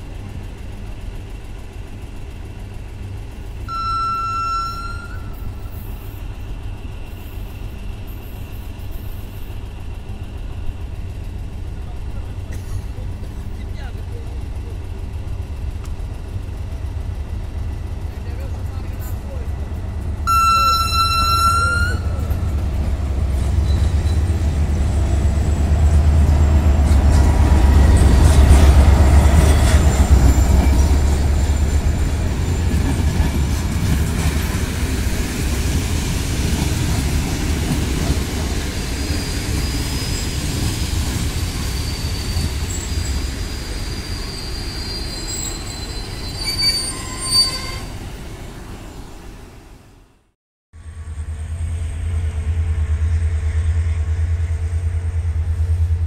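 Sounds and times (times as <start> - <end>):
train coaches rolling over rails: 0.0 - 49.4
diesel locomotive rumbling past: 0.0 - 56.0
high thin wheel squeals: 3.7 - 6.4, 20.3 - 22.6, 23.4 - 25.6, 29.3 - 32.9, 38.8 - 48.0.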